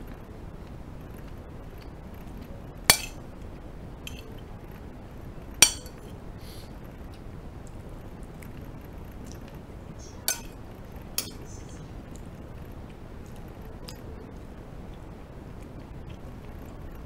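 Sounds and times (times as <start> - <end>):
spoon clinking on ceramic plate: 2.9 - 3.2, 5.6 - 6.1, 10.3 - 10.5
faint spoon taps: 10.3 - 10.5.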